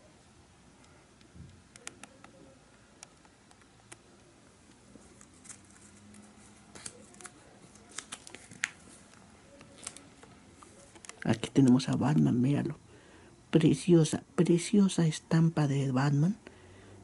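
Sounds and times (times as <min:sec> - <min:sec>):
plastic sleeves clicking and crinkling: 0:04.7 - 0:12.3.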